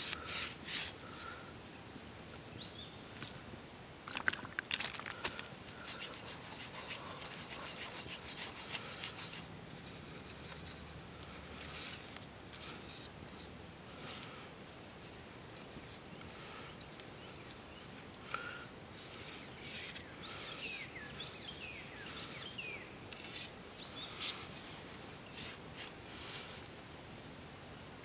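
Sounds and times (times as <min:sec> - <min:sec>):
rubbing and scratching on wood: 0:00.0 - 0:01.3, 0:04.1 - 0:16.2, 0:17.2 - 0:28.0.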